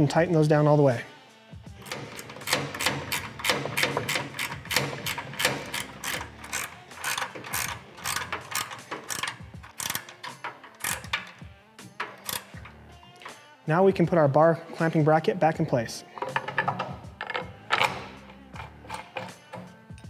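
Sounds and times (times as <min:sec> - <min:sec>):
ratchet wrench clicking: 0:01.8 - 0:13.4, 0:16.2 - 0:20.0.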